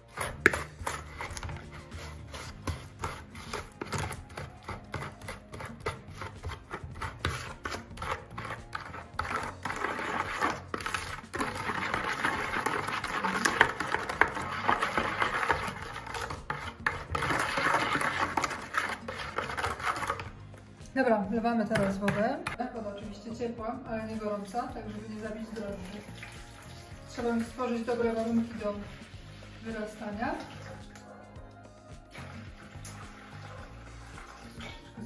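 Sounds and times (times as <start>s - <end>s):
metal spoon scraping plastic bowl: 0.0s - 22.6s.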